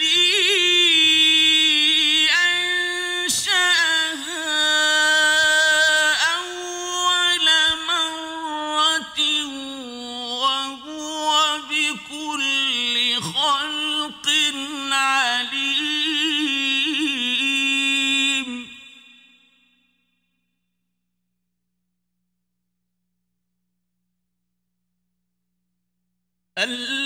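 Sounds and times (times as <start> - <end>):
man chanting unaccompanied: 0.0 - 19.0, 26.6 - 27.0.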